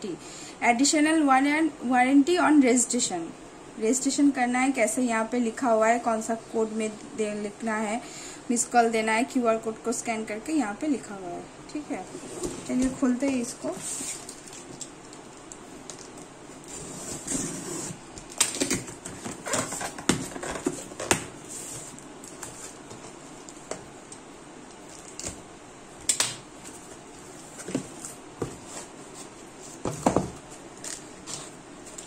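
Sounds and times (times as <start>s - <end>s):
packing scrapes and rustles: 16.6s - 18.0s.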